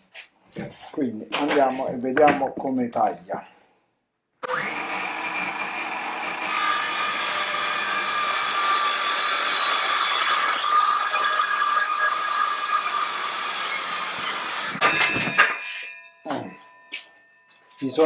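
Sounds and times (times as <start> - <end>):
circular saw cutting wood: 4.4 - 16.0.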